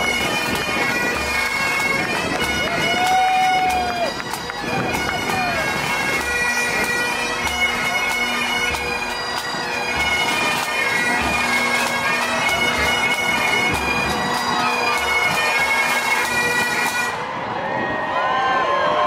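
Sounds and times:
bagpipes playing over drone: 0.0 - 17.2
drums beating: 0.0 - 17.4.

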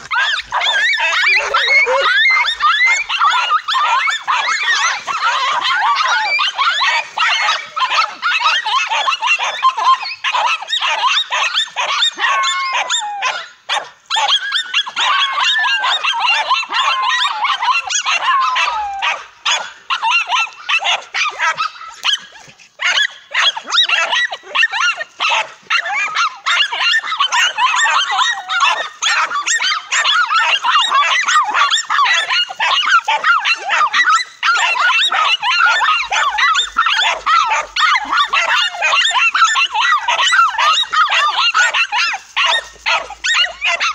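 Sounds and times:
dogs whining: 0.0 - 13.5, 22.8 - 43.9
dogs barking and yelping: 0.0 - 43.9.

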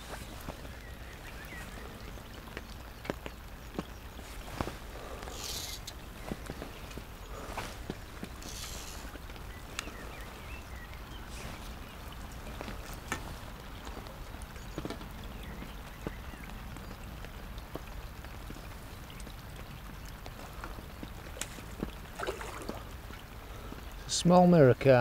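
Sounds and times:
rain on umbrella and lake: 0.0 - 25.0
single raindrop clicks: 7.9 - 9.9.

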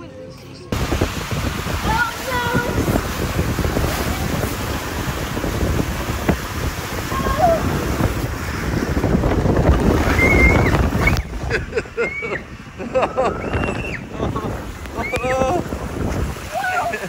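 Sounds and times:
wind buffeting microphone: 0.7 - 17.0.

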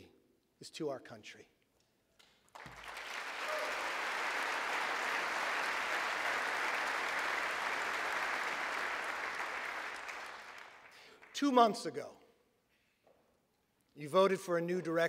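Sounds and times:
crowd applauding: 2.5 - 11.5.

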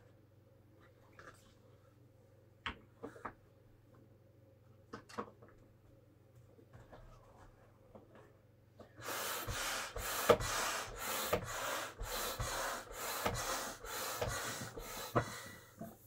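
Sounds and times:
hand air pump strokes: 9.1 - 15.4.

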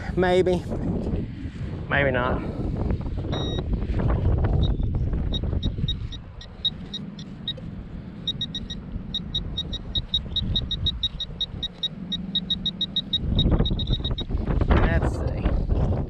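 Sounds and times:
wind rumble on microphone: 0.0 - 16.0
metal detector beeping rapidly: 3.3 - 3.7, 4.6 - 7.6, 8.2 - 14.3.

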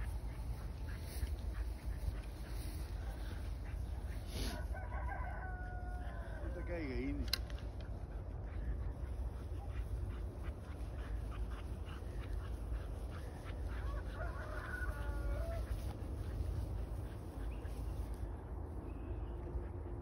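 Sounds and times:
ducks quacking: 0.0 - 4.6.

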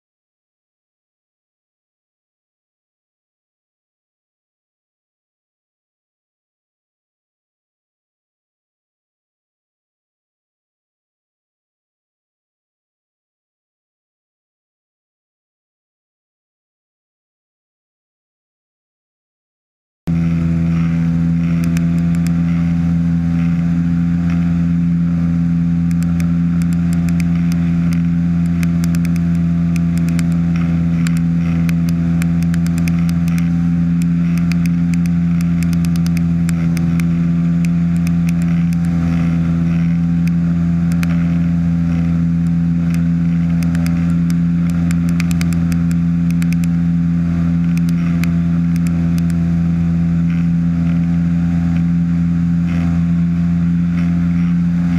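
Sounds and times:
aircraft engine and propeller drone: 20.1 - 54.9.

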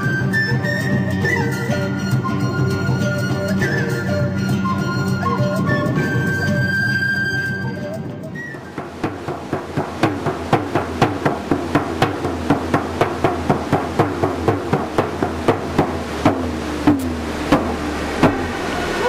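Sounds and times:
frame drum beating: 8.6 - 19.0.

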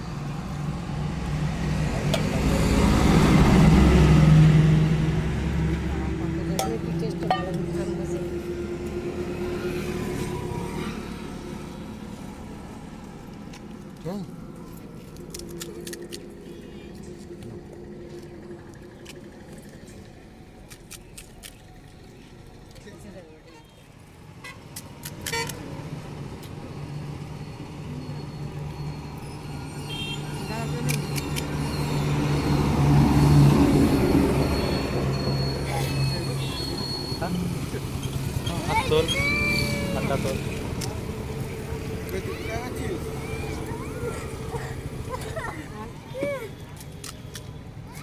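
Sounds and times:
vehicle engine hum: 0.0 - 48.0
car horn toot: 29.9 - 30.5.

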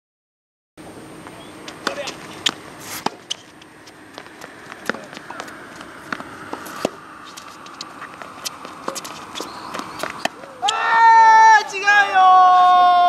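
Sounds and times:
tennis ball bouncing on court: 1.7 - 10.8
tennis ball struck by racket: 1.8 - 3.4, 4.2 - 10.8.

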